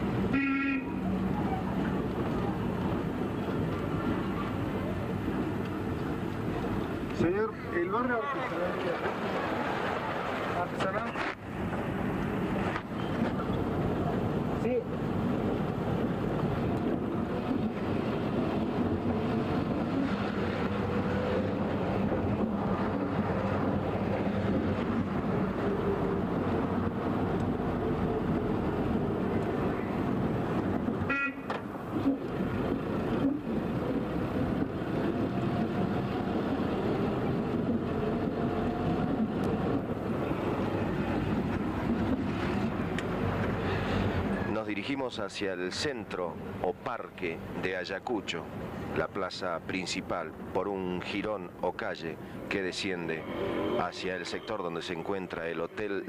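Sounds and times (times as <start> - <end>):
car horn toots: 0.3 - 1.0, 31.0 - 31.6.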